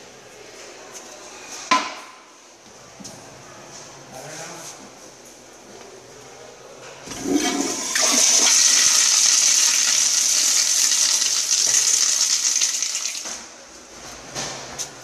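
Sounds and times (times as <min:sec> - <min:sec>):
toilet flushing water rush: 0:07.1 - 0:13.3.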